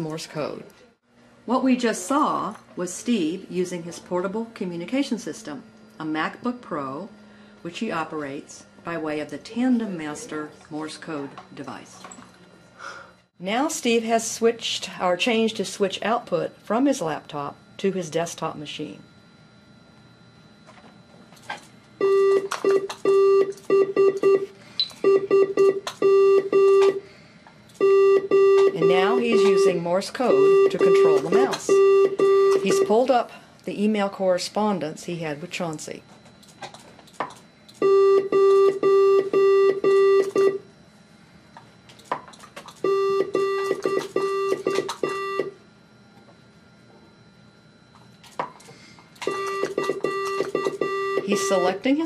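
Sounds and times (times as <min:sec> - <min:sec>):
morse code beeps: 0:22.0 - 0:27.0, 0:27.8 - 0:33.1, 0:37.8 - 0:40.6, 0:42.8 - 0:45.6, 0:49.2 - 0:51.9.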